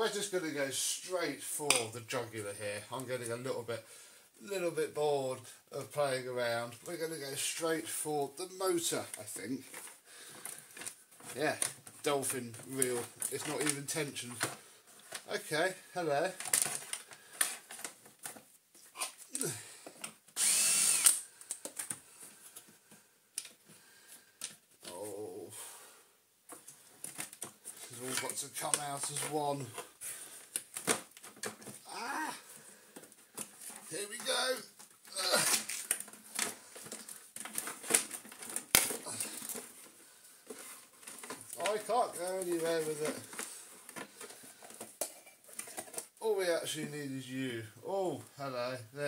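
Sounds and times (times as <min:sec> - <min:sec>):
cordless drill motor whine: 0:20.4 - 0:21.2
plastic parts clicking: 0:34.8 - 0:39.9.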